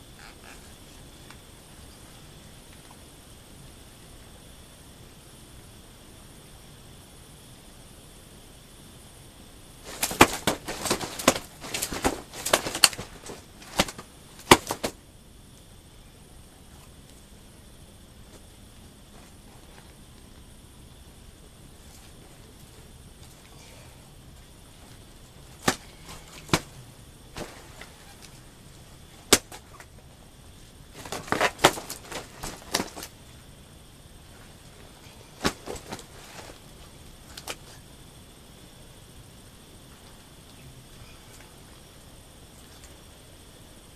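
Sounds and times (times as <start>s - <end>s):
rustling by hand: 9.8s - 15.0s, 24.3s - 33.4s, 34.2s - 37.8s
sharp snaps and crackles: 9.8s - 15.9s, 24.2s - 38.2s.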